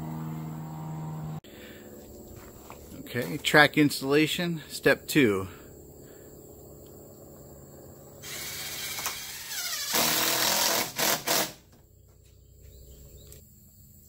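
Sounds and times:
cordless drill driving screw: 0:08.2 - 0:11.6.

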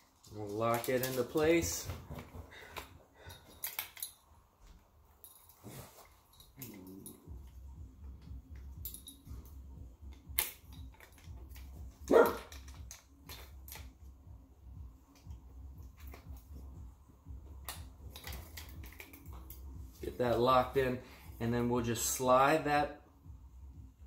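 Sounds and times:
dog barking: 0:12.1 - 0:12.5.

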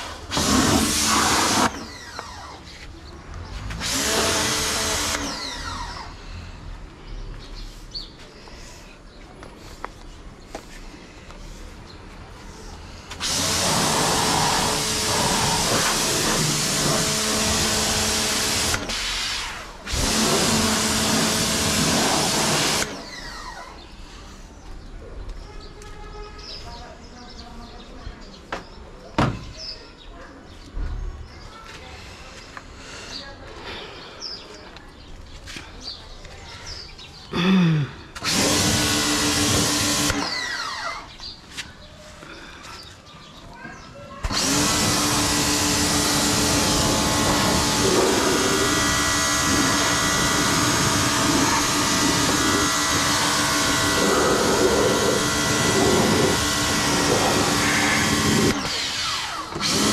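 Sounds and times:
water jet hissing: 0:00.0 - 0:01.8, 0:13.3 - 0:17.0
pressure washer spraying: 0:00.0 - 0:02.2, 0:03.8 - 0:05.4, 0:13.1 - 0:23.0, 0:38.2 - 0:41.0, 0:44.3 - 0:59.9
motor winding down whine: 0:00.4 - 0:02.7, 0:03.8 - 0:06.2, 0:38.2 - 0:41.1, 0:44.2 - 0:59.9.

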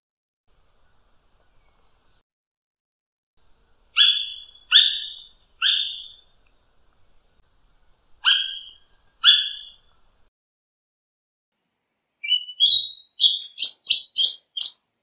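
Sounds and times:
bird calling: 0:03.5 - 0:07.4, 0:08.0 - 0:10.3, 0:12.2 - 0:14.9.

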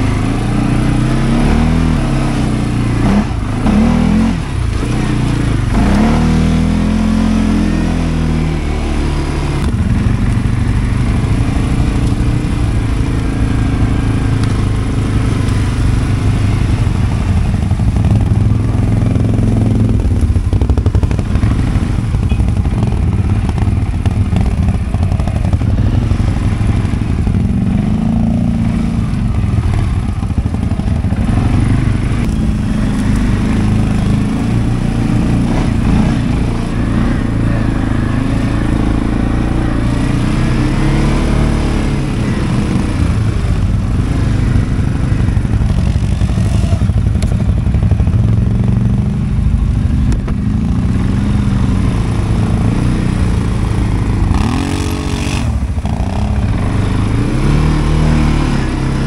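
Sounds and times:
atv engine revving: 0:00.0 - 0:59.0.

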